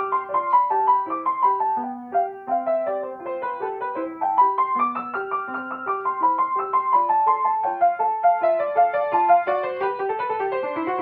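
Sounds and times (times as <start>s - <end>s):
solo piano piece: 0.0s - 11.0s.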